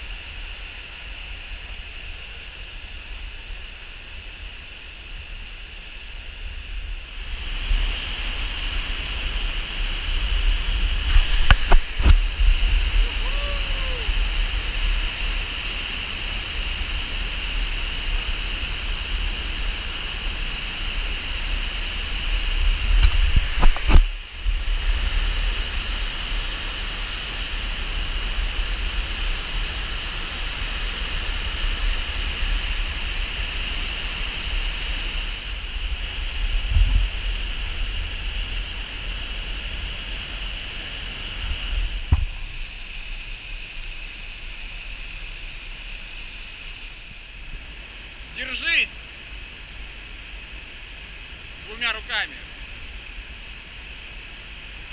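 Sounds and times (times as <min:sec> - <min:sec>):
waterfall rushing: 0:07.2 - 0:23.9, 0:37.4 - 0:54.8.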